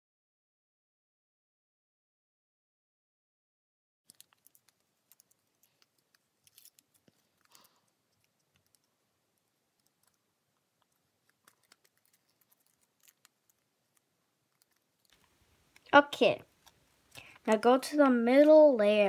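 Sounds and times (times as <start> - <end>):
paper crackling being creased: 11.3 - 14.0.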